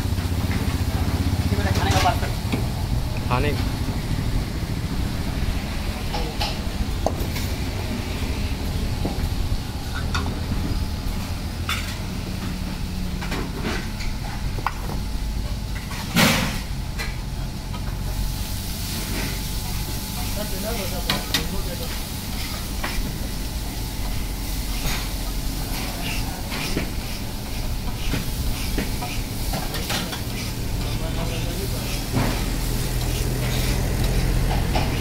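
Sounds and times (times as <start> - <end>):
food sizzling on a griddle: 16.8 - 35.0.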